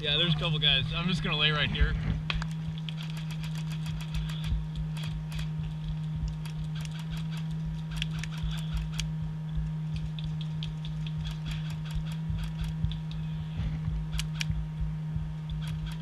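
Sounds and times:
low rumble: 0.0s - 16.0s
steady low hum: 0.0s - 16.0s
light clicks and ticks: 2.3s - 13.3s.

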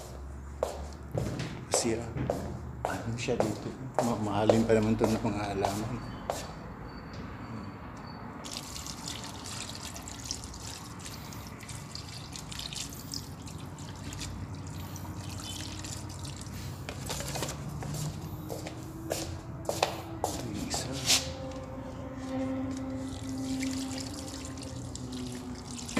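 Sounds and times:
water running and splashing: 8.4s - 17.7s, 23.0s - 25.9s.

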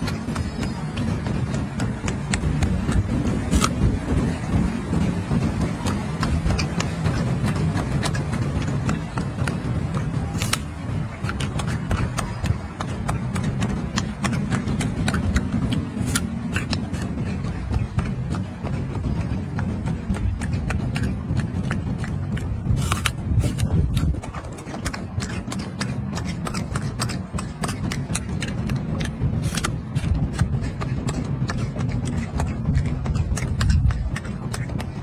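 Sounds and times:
wind rumble on microphone: 0.0s - 35.0s
sharp clicks: 5.8s - 17.2s.

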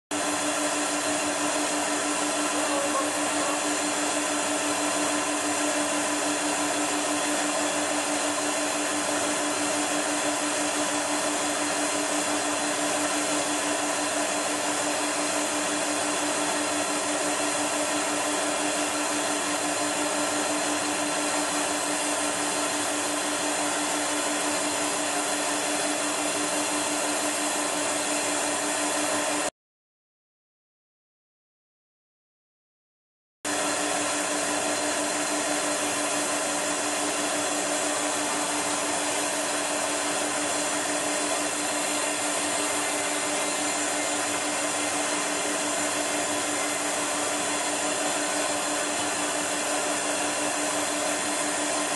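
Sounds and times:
vacuum motor running: 0.1s - 29.5s, 33.5s - 51.9s.

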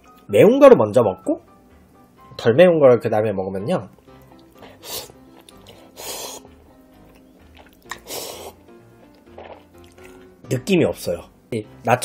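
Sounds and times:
quiet background music: 0.0s - 12.0s
noodles being slurped: 4.1s - 10.3s.

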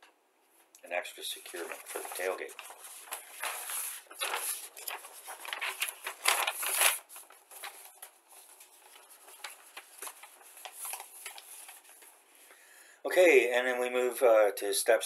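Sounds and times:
paper rustling and crinkling: 1.2s - 12.2s.

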